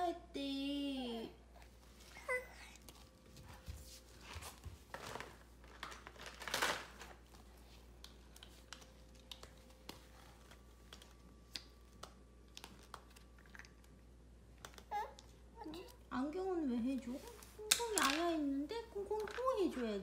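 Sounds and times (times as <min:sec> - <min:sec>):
plastic toy rustling: 0:04.8 - 0:07.6.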